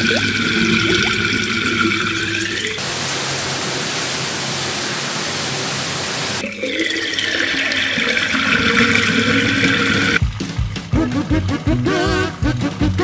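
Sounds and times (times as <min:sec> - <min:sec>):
water gurgling down plughole: 0:00.0 - 0:02.8, 0:06.4 - 0:11.1
water pouring into plastic bucket: 0:00.0 - 0:02.8, 0:06.4 - 0:11.0.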